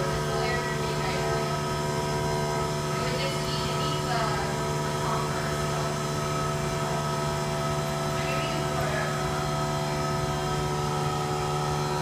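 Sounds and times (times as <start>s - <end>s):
steady machine hum: 0.0s - 12.0s.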